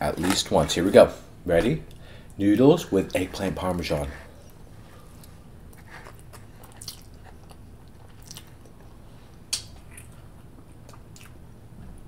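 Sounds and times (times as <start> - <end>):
wet chewing: 4.4 - 11.4.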